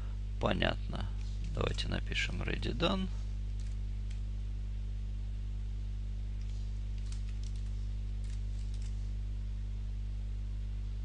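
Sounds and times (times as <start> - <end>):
low electrical hum: 0.0 - 11.0
computer keyboard keystrokes: 6.4 - 9.0.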